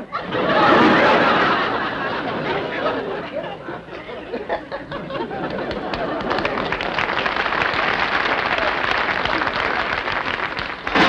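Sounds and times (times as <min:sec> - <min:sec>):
studio audience laughing: 0:00.0 - 0:10.0
audience applause: 0:05.0 - 0:11.0.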